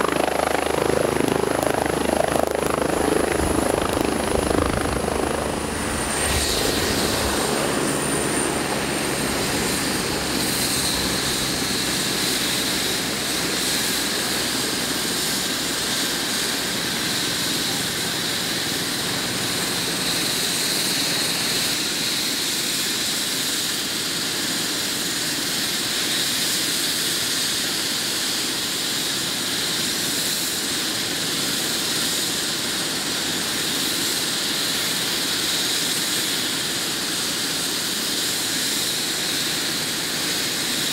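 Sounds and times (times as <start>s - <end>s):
rotor rushing noise: 0.0s - 12.9s
helicopter turbine whine: 0.0s - 40.9s.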